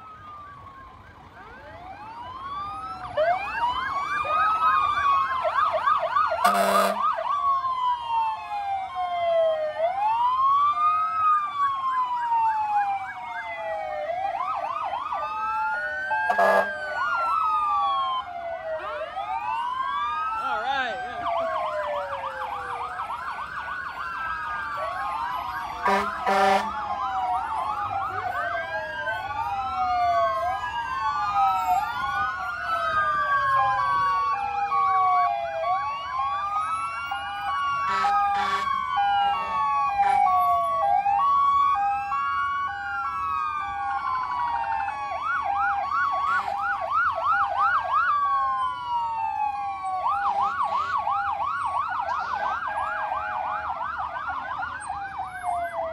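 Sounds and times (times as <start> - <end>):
fire truck sirens wailing: 0.0 - 55.9
short horn blasts: 6.4 - 7.0, 25.8 - 26.7.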